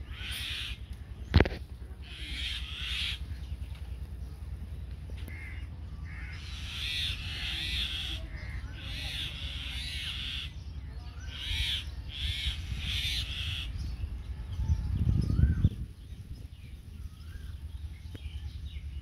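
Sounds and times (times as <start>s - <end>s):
birds giving harsh calls: 0.0s - 19.0s
wind rumble on microphone: 10.7s - 19.0s.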